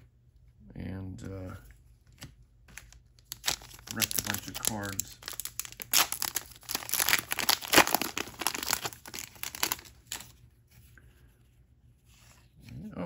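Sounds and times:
wrapper torn and crinkled: 2.8 - 10.3.

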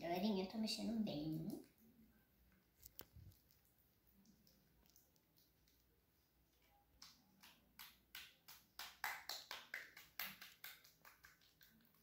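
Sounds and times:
hand stirring wet slime: 0.0 - 12.0.

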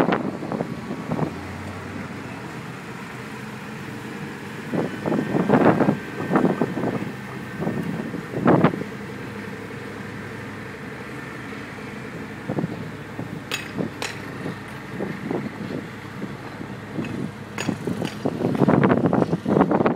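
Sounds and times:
diesel engine running: 0.0 - 19.9
loud buffet of noise: 0.0 - 19.9
sharp clicks or knocks: 17.0 - 18.3.

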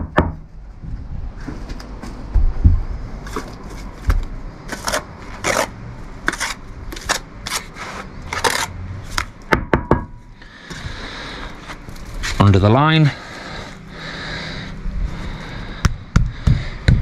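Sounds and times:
trowel scraping and tapping: 6.3 - 9.3.

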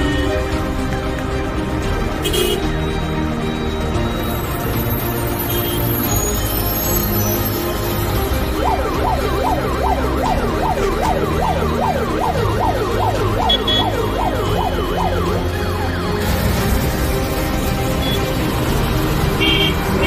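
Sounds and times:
siren wailing in fast yelps: 8.6 - 16.2.

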